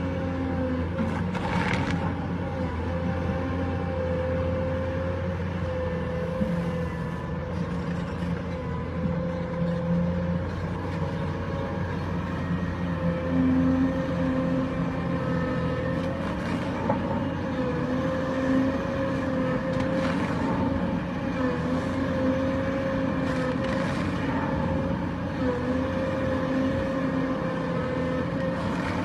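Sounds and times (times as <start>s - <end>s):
excavator diesel engine under load: 0.0s - 29.0s
faint rock cracks and scrapes: 1.0s - 2.3s.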